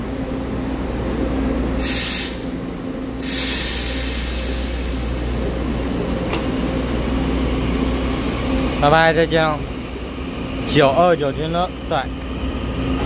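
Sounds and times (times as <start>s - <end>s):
train equipment humming: 0.0s - 13.0s
air hissing: 1.8s - 2.6s, 3.2s - 7.1s.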